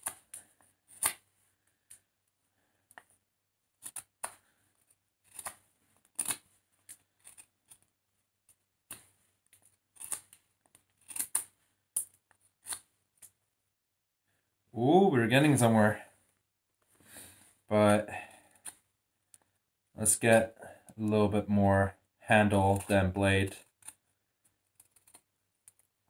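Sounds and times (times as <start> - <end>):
knife whittling wood: 3.8 - 7.9, 8.9 - 12.9.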